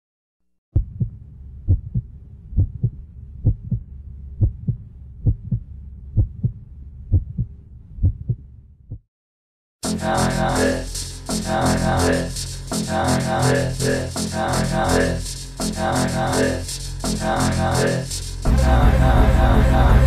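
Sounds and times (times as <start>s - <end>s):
steady low hum: 0.8s - 8.7s, 9.8s - 20.0s
heartbeat thumps: 0.8s - 9.0s.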